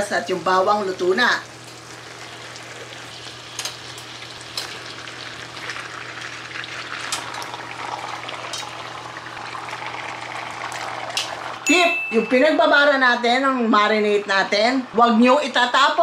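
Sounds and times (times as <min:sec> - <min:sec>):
meat sizzling in oil: 0:00.5 - 0:11.6.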